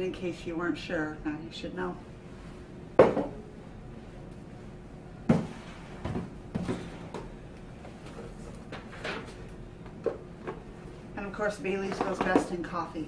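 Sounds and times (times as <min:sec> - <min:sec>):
glass bottles knocking on countertop: 0:03.0 - 0:03.4.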